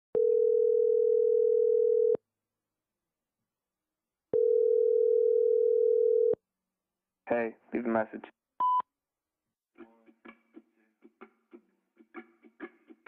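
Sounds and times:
telephone ringback tone: 0.2 - 2.2, 4.4 - 6.4.

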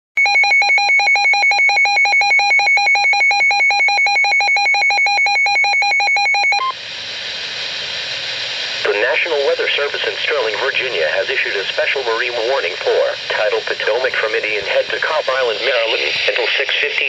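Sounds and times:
rapid electronic beeping warble: 0.2 - 6.7
weather radio hiss: 7.5 - 17.0
steady tone: 12.8 - 17.0.

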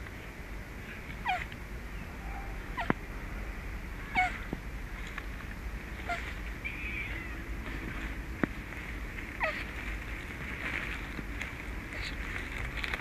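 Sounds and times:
animal calling: 0.9 - 4.6, 5.9 - 7.6, 9.3 - 9.8.

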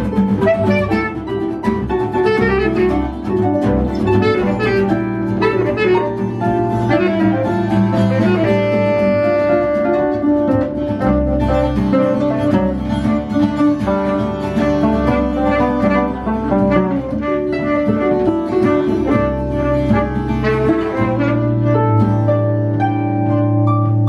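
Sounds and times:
acoustic guitar plucking: 0.0 - 24.0
saxophone melody: 0.0 - 24.0.

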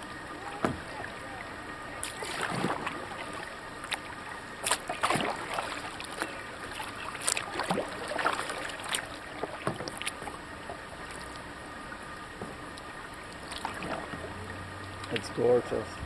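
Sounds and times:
paddles splashing through water: 0.0 - 16.0
water dripping from blades: 12.7 - 15.7.

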